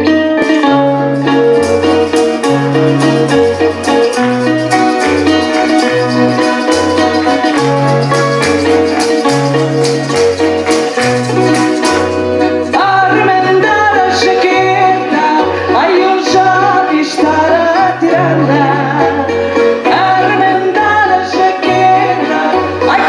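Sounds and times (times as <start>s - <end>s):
two-note bass: 0.0s - 15.1s
accordion: 0.0s - 23.0s
guitars playing folk tune: 0.0s - 23.0s
person singing: 0.4s - 23.0s
tambourine and shaker: 1.1s - 12.8s.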